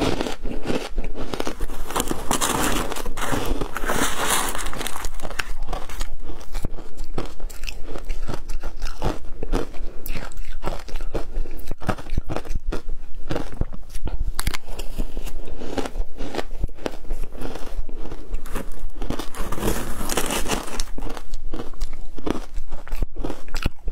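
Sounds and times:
shaved ice crunching: 1.3 - 6.1, 18.4 - 21.2.

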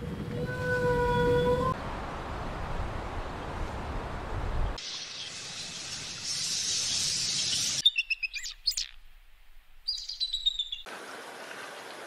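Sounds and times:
steady hiss: 4.7 - 7.8
eagle chirping calls: 7.5 - 9.0, 9.9 - 10.9.

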